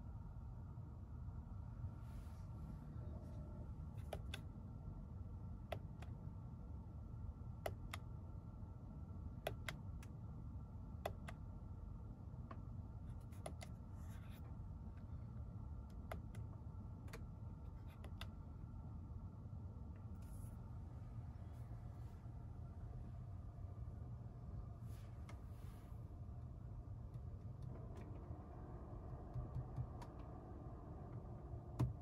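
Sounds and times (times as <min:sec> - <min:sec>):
low cabin hum: 0:00.0 - 0:32.0.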